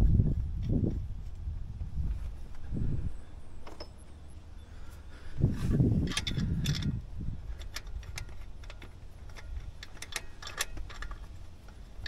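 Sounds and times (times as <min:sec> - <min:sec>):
low rumble: 0:00.0 - 0:10.0
hand ratchet clicking: 0:06.0 - 0:12.0
metal tools clinking: 0:06.0 - 0:12.0.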